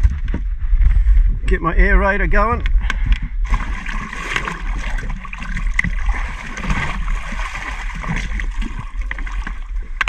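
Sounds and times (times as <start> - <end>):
water gurgling into plastic tub: 3.4 - 10.0.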